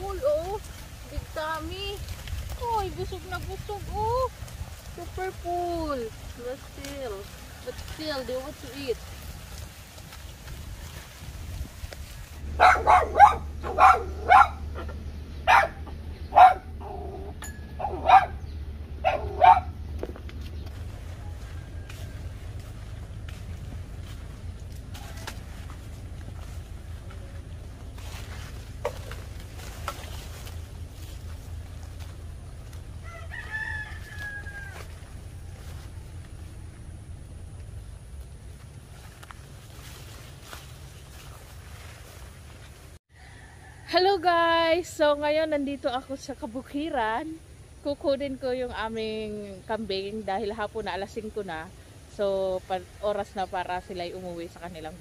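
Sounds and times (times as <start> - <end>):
low rumble: 0.0 - 43.0
dog barking: 12.5 - 18.4, 19.0 - 19.8
rooster crowing: 21.0 - 23.4, 32.9 - 35.4, 43.1 - 44.1.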